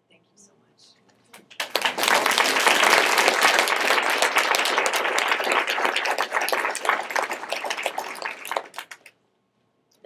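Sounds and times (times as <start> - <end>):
audience applauding: 1.4 - 9.1.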